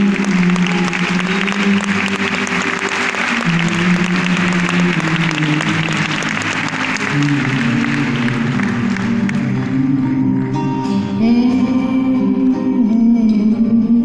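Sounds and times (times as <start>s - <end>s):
audience applauding: 0.0s - 11.0s
acoustic guitar playing: 0.0s - 14.0s.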